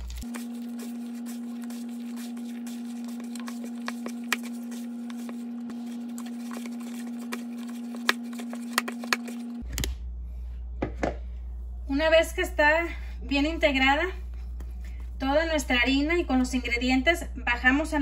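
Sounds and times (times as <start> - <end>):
hands kneading dough: 0.0 - 9.7, 13.3 - 15.7.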